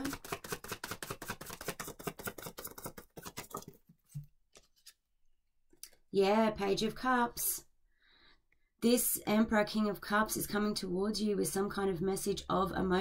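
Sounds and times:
cards being shuffled: 0.0 - 5.0.

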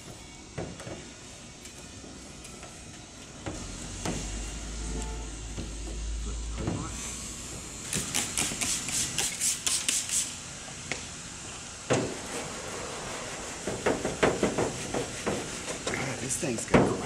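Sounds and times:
clay bar rubbing on car paint: 12.0 - 16.3.

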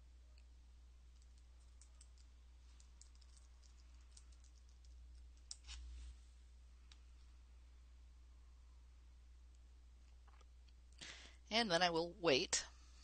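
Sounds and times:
keyboard typing: 1.2 - 5.6.

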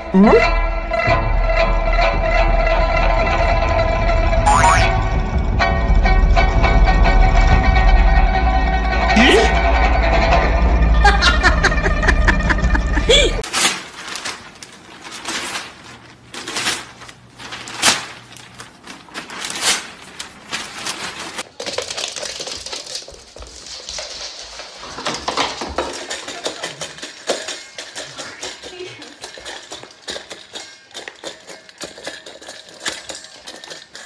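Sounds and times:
metal bowl rattling on wooden floor: 18.8 - 34.0.

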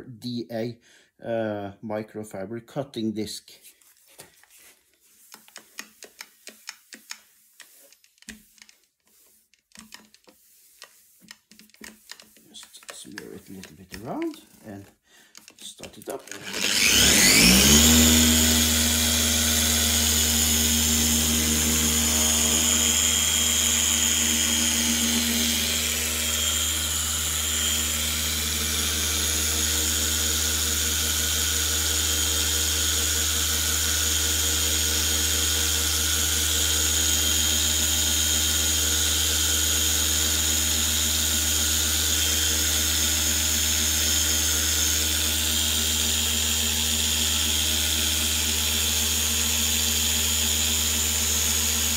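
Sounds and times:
polisher motor hum and whine: 16.3 - 51.9.

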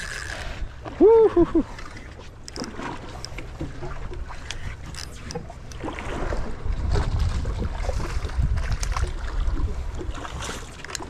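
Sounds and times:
water sloshing against hull: 0.0 - 11.0
wind buffeting microphone: 3.9 - 10.6.

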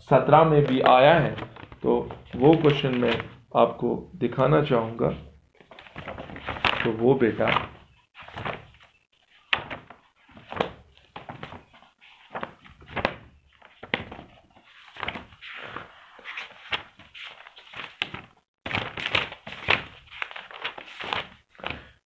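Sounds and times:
page snaps: 0.6 - 3.3
book pages rustling: 0.6 - 3.4, 5.5 - 22.0.

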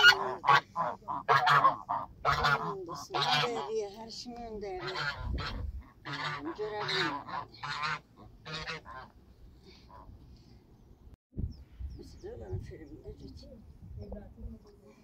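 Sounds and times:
geese honking: 0.0 - 4.1, 4.7 - 9.2.

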